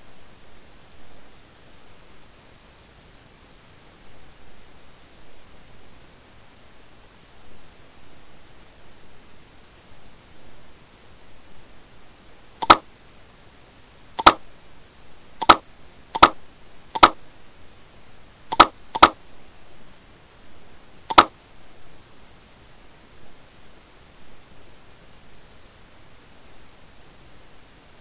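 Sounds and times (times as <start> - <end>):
faint steady hiss: 0.0 - 28.0
mouse buttons clicking: 12.6 - 12.8, 14.2 - 14.4, 15.4 - 15.6, 16.2 - 16.4, 17.0 - 17.2, 18.5 - 19.2, 21.1 - 21.3.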